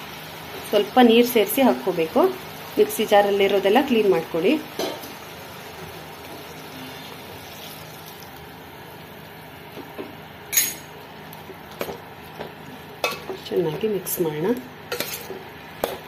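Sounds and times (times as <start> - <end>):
vegetables sizzling in a pot: 0.0 - 16.0
metallic clink: 10.5 - 10.9.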